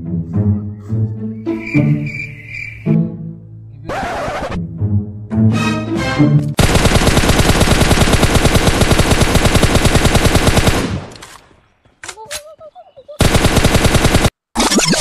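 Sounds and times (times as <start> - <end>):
rapid automatic gunfire: 6.6 - 11.1, 13.2 - 14.4.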